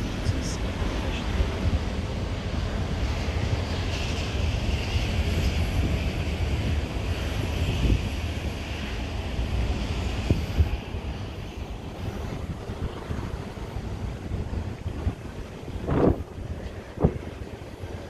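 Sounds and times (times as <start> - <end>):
distant jet aircraft drone: 0.0 - 18.0
wind rumbling on microphone: 0.0 - 18.0
hiss: 3.1 - 12.3.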